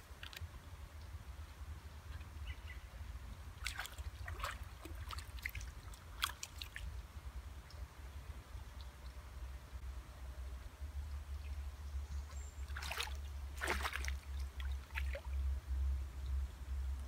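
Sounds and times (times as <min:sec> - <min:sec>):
low steady rumble: 0:00.0 - 0:17.0
water splashing: 0:03.5 - 0:07.0, 0:12.6 - 0:15.5.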